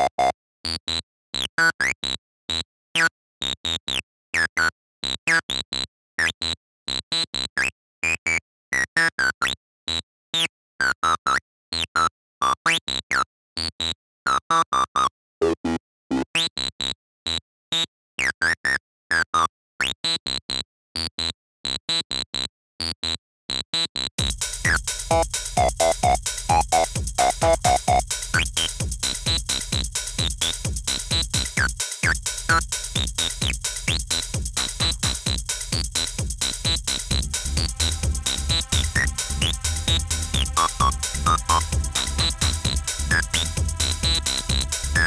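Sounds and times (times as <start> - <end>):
staccato acid synthesizer line: 24.2 - 45.0
techno drum beat: 24.2 - 45.0.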